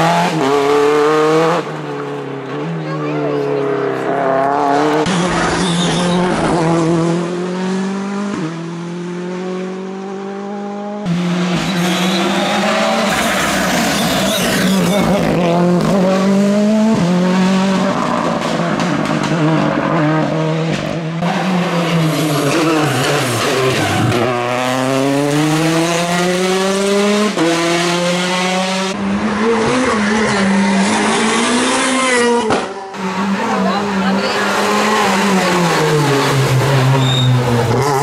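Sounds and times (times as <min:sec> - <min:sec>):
rally car engines revving: 0:00.0 - 0:38.0
tyres squealing: 0:11.6 - 0:15.2.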